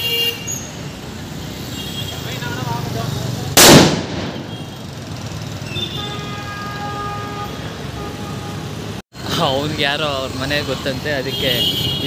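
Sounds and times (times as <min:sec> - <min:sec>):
vehicle horn honking: 0:00.0 - 0:00.7, 0:05.6 - 0:08.8, 0:11.2 - 0:12.0
street traffic: 0:00.0 - 0:12.0
firecracker bang: 0:03.5 - 0:04.7.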